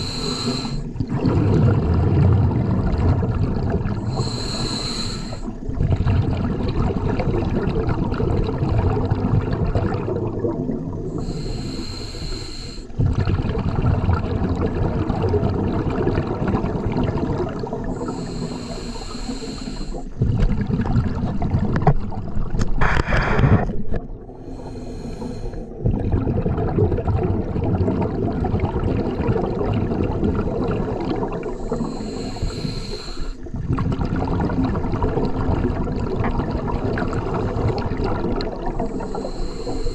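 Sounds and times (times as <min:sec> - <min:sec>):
regulator hissing inhalations: 0:00.0 - 0:00.9, 0:04.0 - 0:05.6, 0:11.1 - 0:13.0, 0:17.9 - 0:20.2, 0:24.4 - 0:25.7, 0:31.5 - 0:33.5, 0:38.7 - 0:39.9
gurgling exhaled bubbles underwater: 0:00.0 - 0:39.9.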